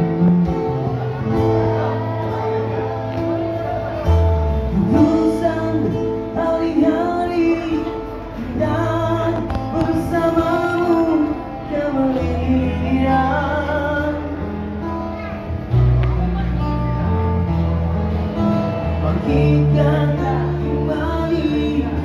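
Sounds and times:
bass line: 0.0 - 22.0
electric guitars: 0.0 - 22.0
man singing through microphone: 4.7 - 14.8, 18.8 - 22.0.

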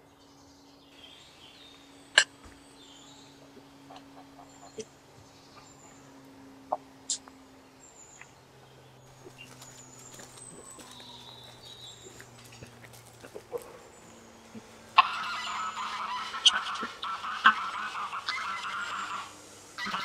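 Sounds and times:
faint high bird chirps: 0.6 - 12.7
farmyard fowl honking: 3.3 - 5.0, 9.1 - 20.0.

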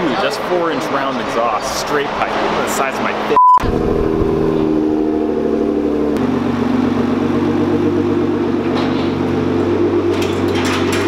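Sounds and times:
car engine idling: 3.6 - 11.0.

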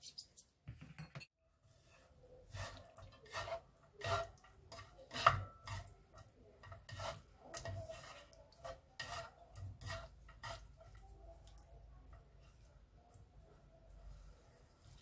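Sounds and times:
utensils scraping frying pan: 1.7 - 11.0.

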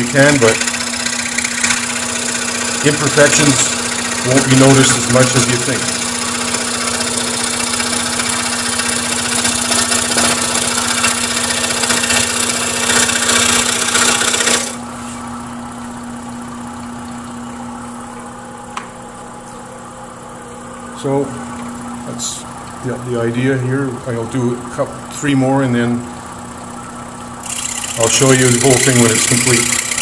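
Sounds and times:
scroll saw blade chatter: 0.0 - 14.8, 27.4 - 30.0
saw motor hum: 0.0 - 30.0.

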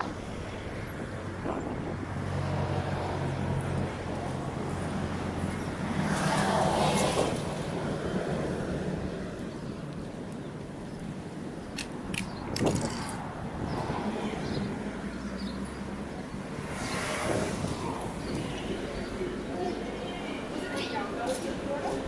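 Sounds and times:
car engines humming: 0.0 - 22.0
vehicle passing close: 12.4 - 20.0.

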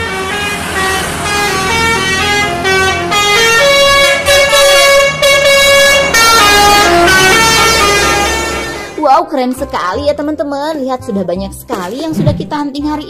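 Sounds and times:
multi-tone bus horn tune: 0.0 - 9.2.

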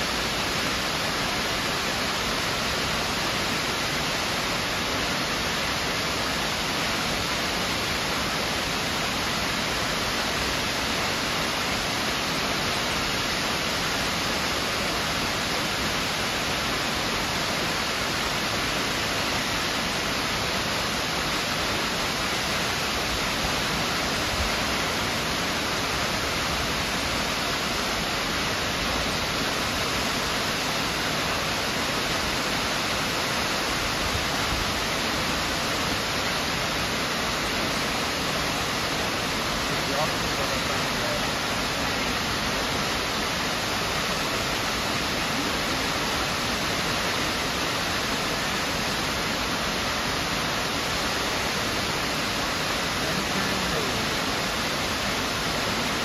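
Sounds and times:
waterfall rushing: 0.0 - 56.0.

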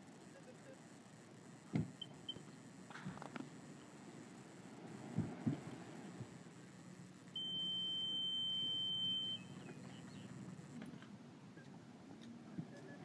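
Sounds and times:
metal detector high-pitched tone: 7.3 - 10.7.

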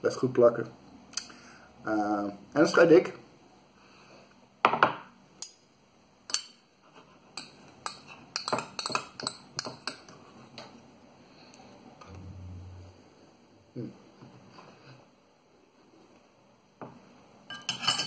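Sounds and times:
metal spoon clinking in glass bowl: 7.4 - 10.1, 17.5 - 18.0.

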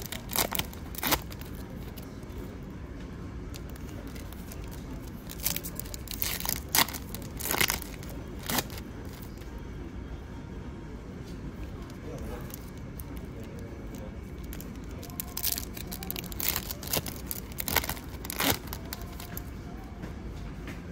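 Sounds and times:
foil wrapper crinkling: 0.0 - 2.1, 3.5 - 9.4, 11.8 - 19.5
foil wrapper ripping: 0.0 - 2.1, 3.6 - 9.4, 12.1 - 19.4.

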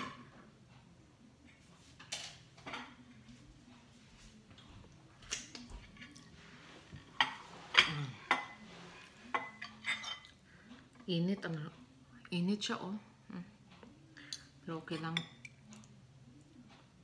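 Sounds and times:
plate and cutlery clinking: 7.0 - 10.4.

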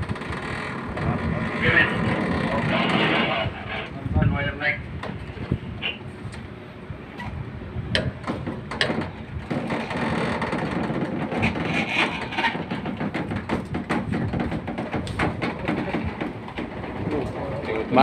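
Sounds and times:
rigging knocks and clicks: 7.9 - 17.8.

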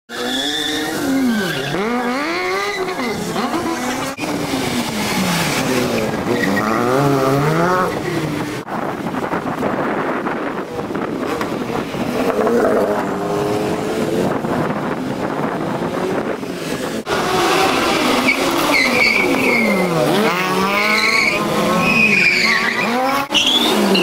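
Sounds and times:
rally car engines revving: 0.1 - 24.0.

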